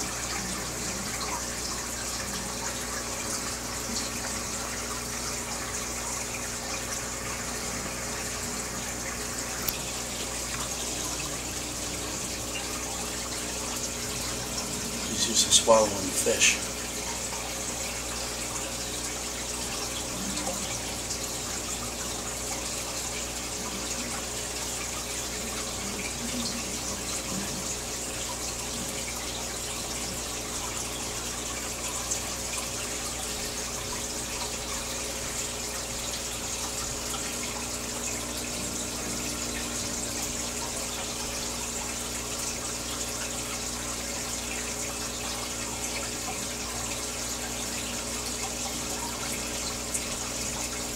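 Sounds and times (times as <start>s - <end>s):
aquarium water bubbling: 0.0s - 50.9s
faint steady hum: 0.0s - 50.9s.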